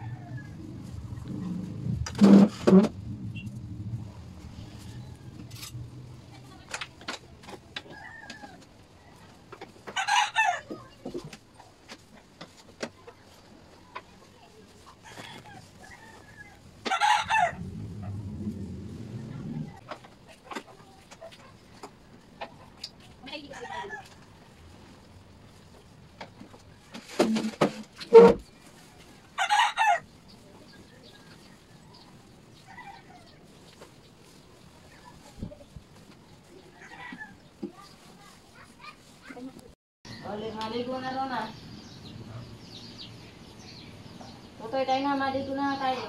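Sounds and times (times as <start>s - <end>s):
chair scraping on floor: 1.2s - 3.6s, 26.9s - 28.4s
rooster crowing: 10.0s - 10.7s, 15.1s - 17.7s, 29.4s - 30.0s.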